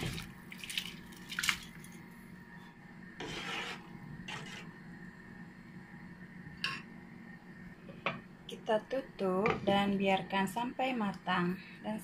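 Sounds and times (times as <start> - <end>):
steady low hum: 0.0 - 12.0
spoon scraping pot: 3.2 - 4.7.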